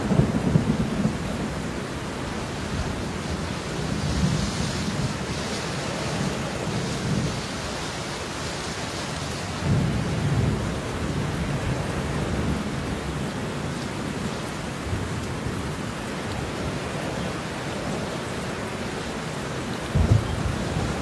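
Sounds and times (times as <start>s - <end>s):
rolling thunder: 0.0s - 1.7s, 19.9s - 21.0s
heavy rain: 0.0s - 21.0s.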